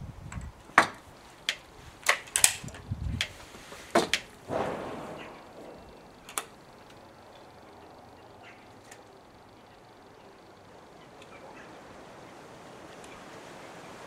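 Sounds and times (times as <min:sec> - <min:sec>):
air rifle metallic clicks: 0:00.3 - 0:07.6
short rushing noise: 0:04.4 - 0:06.9.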